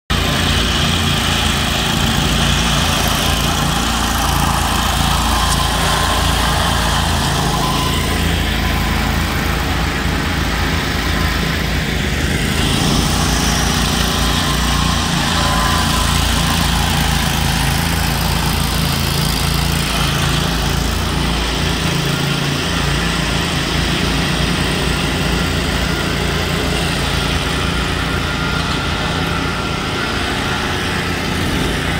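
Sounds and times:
power trowel engine running: 0.1 - 31.9.

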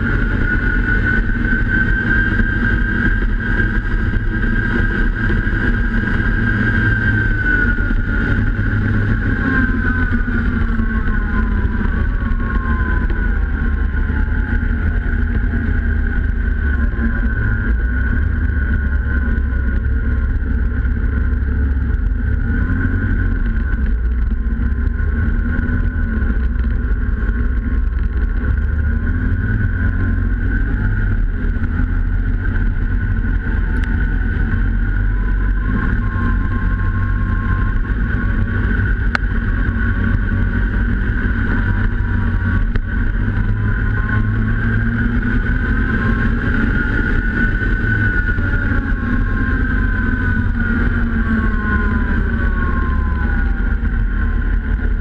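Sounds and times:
snowmobile engine running: 0.0 - 55.0.

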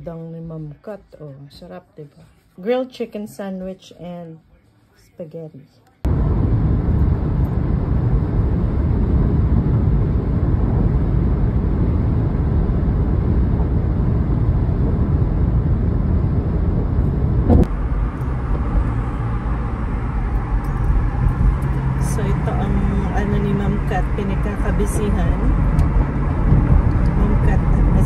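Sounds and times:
road and tyre noise in car: 6.0 - 28.0.

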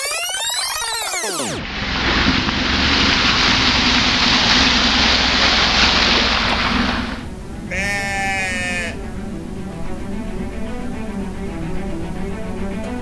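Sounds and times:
motorcycle through muddy puddle: 1.6 - 7.3
water spray rushing: 1.6 - 7.9
sheep bleating: 7.6 - 9.0.

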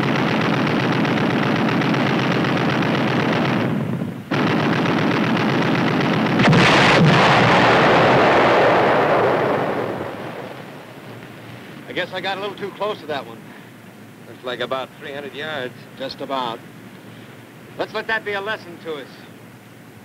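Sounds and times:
deck gun automatic bursts: 0.0 - 11.4
sea mine exploding: 0.1 - 13.2.

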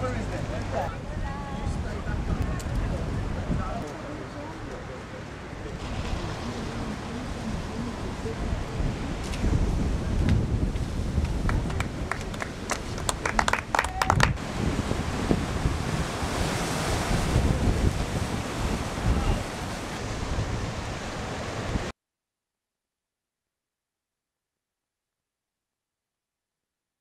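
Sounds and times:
wind buffeting microphone: 0.9 - 4.3, 5.6 - 21.9
waves breaking on rocks: 5.7 - 21.9.

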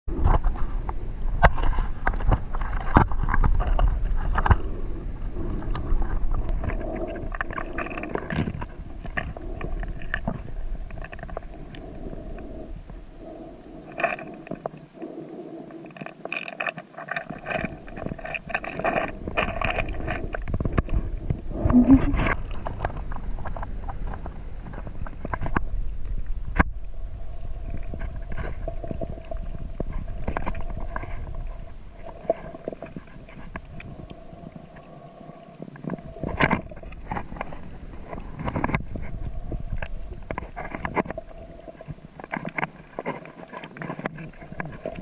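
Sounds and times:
muffled underwater rumble of water: 0.1 - 45.0.

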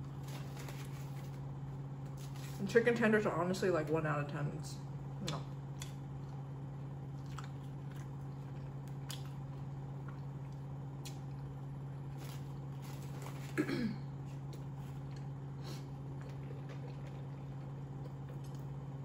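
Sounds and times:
steady low hum: 0.0 - 19.0
faint chewing: 5.3 - 13.6, 14.2 - 18.8.

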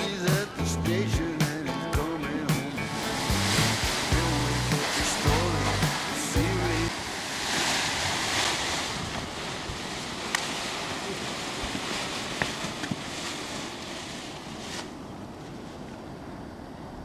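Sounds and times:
wind on microphone: 2.8 - 15.7.

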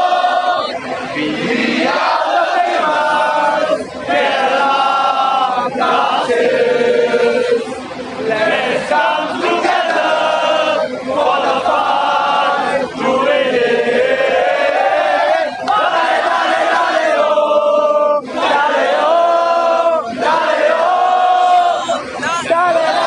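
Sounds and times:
crowd chanting and singing: 0.0 - 23.0.

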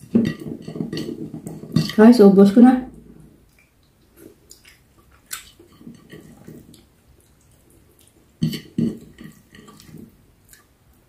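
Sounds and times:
wet chewing and smacking: 3.4 - 11.0.

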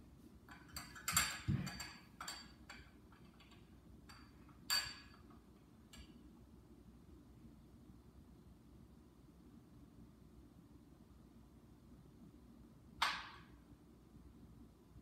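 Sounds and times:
glassware clinking: 0.5 - 3.5, 4.1 - 5.2.

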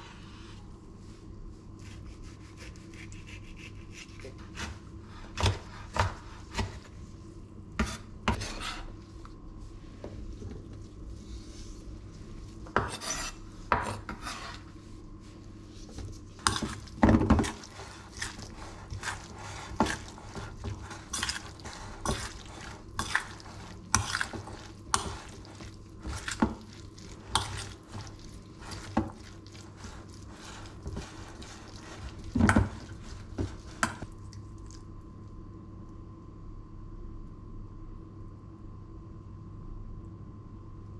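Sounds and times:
metal spoon stirring in steel bowl: 12.8 - 14.6, 16.4 - 34.1.

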